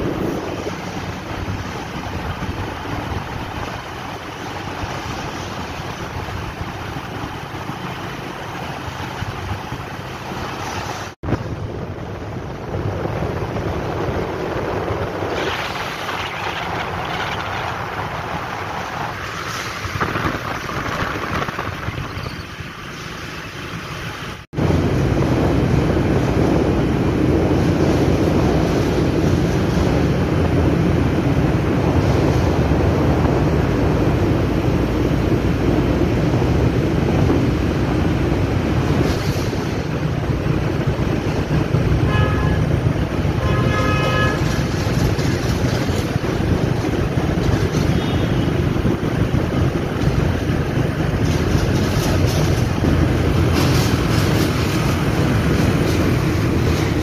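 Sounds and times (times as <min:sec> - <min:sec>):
motorcycle riding in tunnel: 0:00.0 - 0:57.0
vehicle horn toots: 0:42.0 - 0:44.6.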